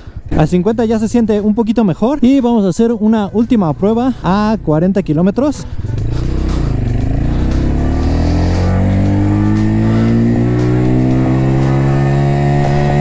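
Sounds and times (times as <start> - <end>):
motorcycle engine accelerating: 3.8 - 13.0.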